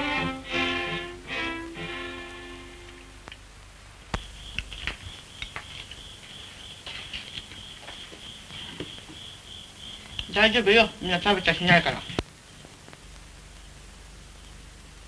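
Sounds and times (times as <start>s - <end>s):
violin note: 0.0s - 3.2s
faint high whine: 0.0s - 15.0s.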